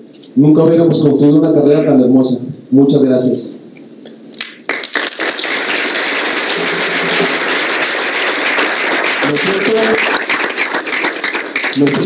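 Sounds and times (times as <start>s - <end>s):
people applauding: 4.4s - 12.0s
man's voice: 9.2s - 10.1s.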